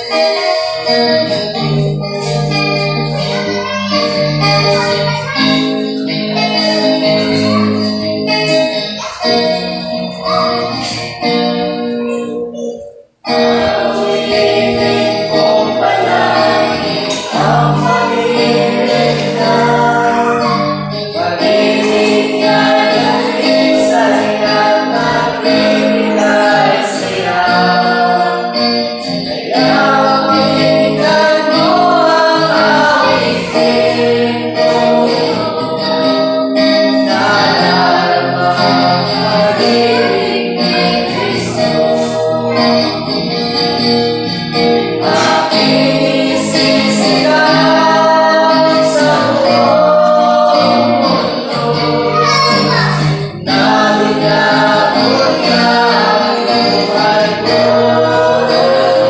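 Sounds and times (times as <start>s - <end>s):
instrumental accompaniment: 0.0s - 59.0s
young voices singing a hymn: 0.0s - 59.0s.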